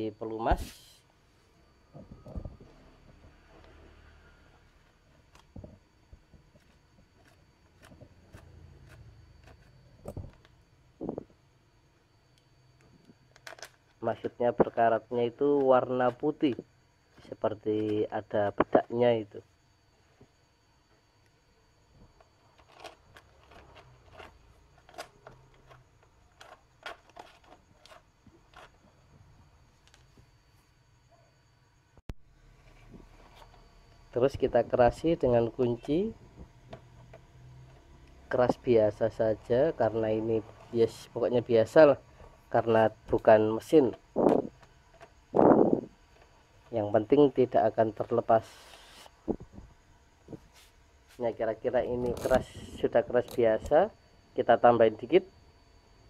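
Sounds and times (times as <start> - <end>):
hands working a bolt in plastic: 22.1 - 29.0.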